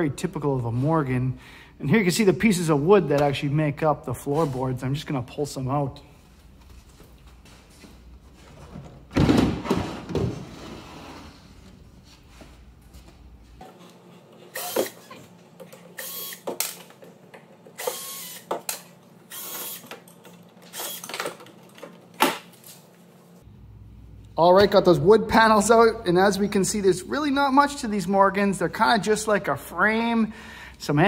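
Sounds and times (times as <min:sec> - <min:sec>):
wooden floor panel scraping: 0:09.6 - 0:11.8
cordless drill running: 0:14.5 - 0:15.1, 0:16.0 - 0:16.5, 0:17.8 - 0:18.5, 0:19.3 - 0:19.9, 0:20.7 - 0:21.1.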